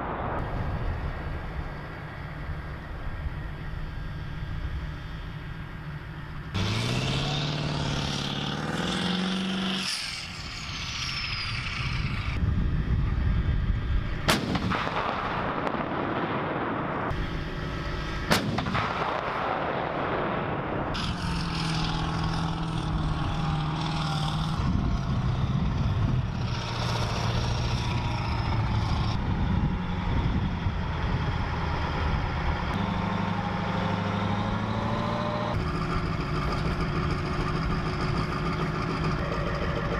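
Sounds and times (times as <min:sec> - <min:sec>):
tracked vehicle engines running: 0:00.4 - 0:39.9
cannon blasts: 0:14.2 - 0:17.3, 0:18.2 - 0:21.0.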